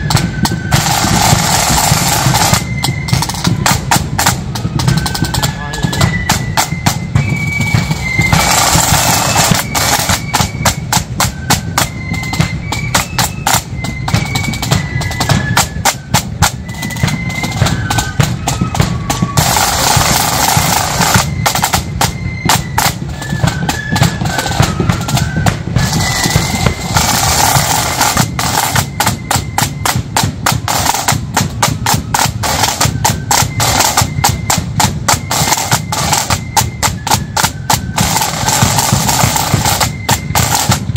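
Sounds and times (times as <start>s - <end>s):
flute melody: 0.0s - 40.9s
snare drum rolls: 0.0s - 40.9s.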